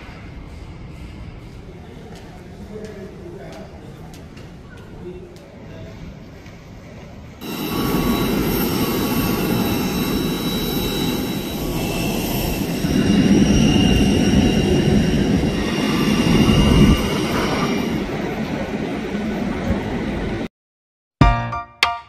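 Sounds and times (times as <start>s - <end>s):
jet engine rumble and whine: 7.1s - 20.5s.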